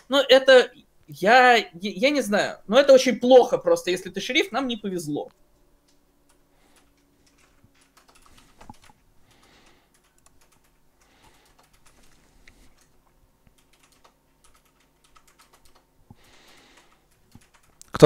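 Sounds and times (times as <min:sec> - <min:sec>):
typing on keyboard: 0:05.8 - 0:18.0.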